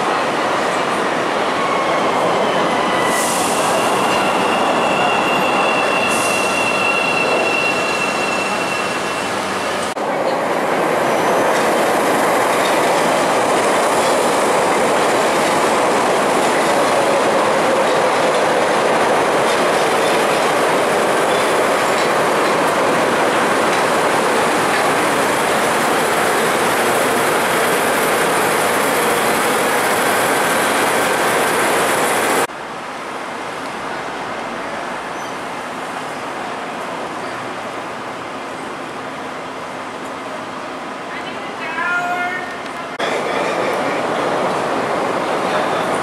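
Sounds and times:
train wheels on rails: 0:00.0 - 0:32.5.

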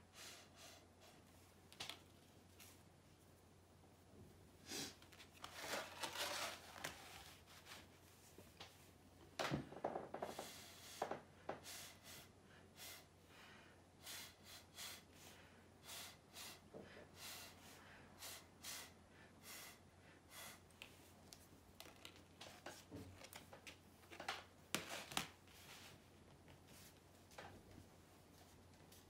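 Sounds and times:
breath puffs through a straw: 0:14.0 - 0:20.7.

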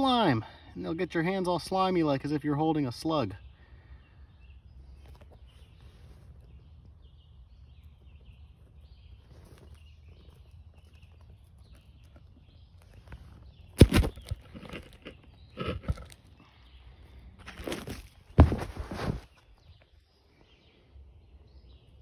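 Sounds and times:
phone handling scuffs and knocks: 0:17.4 - 0:19.3.

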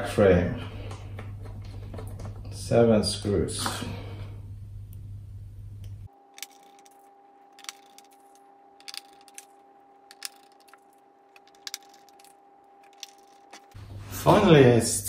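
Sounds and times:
low steady hum: 0:00.0 - 0:15.0
screwdriver and screws clicking: 0:06.4 - 0:09.5, 0:10.1 - 0:13.8.

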